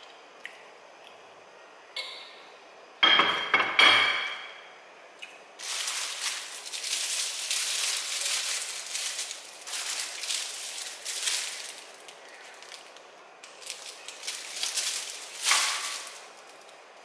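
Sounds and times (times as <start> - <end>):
plastic wrapping crinkling: 5.6 - 17.0.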